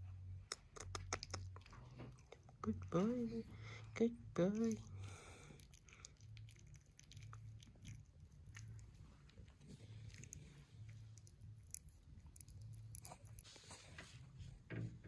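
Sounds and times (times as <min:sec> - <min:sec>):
low hum: 0:00.0 - 0:15.0
puppy nibbling clicks and smacks: 0:00.4 - 0:03.3, 0:05.5 - 0:13.5.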